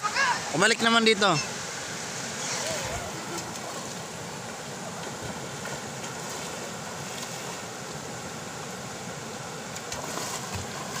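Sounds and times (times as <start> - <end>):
river water rushing: 0.0 - 11.0.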